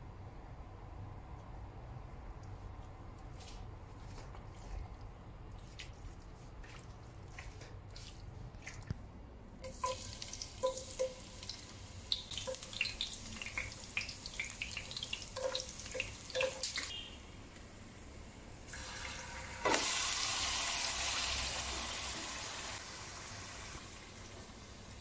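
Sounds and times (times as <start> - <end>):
oil sizzling and popping: 9.6 - 17.7, 18.7 - 25.0.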